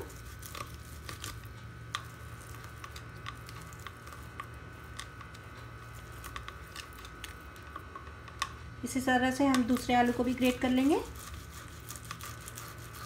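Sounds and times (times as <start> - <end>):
potato scraping on metal grater: 0.0 - 7.4, 9.5 - 13.0.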